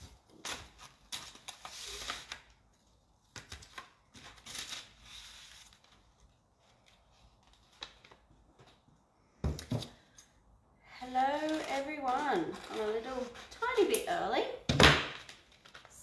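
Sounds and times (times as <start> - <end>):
paper rustling and crinkling: 0.0 - 8.8, 11.1 - 13.9, 15.1 - 16.0.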